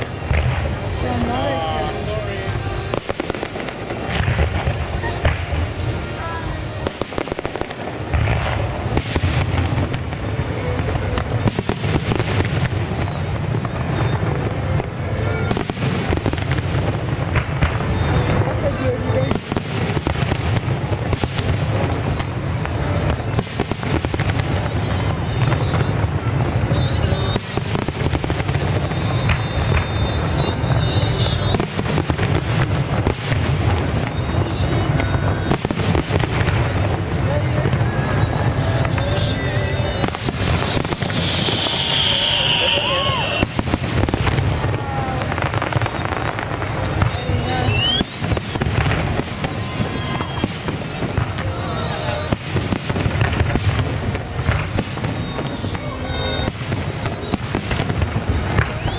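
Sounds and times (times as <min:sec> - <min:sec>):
music playing: 0:00.0 - 0:20.1
continuous low rumble: 0:00.0 - 0:58.9
fireworks bursting and crackling: 0:00.0 - 0:58.9
thin high whistle: 0:24.4 - 0:32.2, 0:38.0 - 0:43.7, 0:44.8 - 0:48.6, 0:49.2 - 0:52.3, 0:54.0 - 0:58.9.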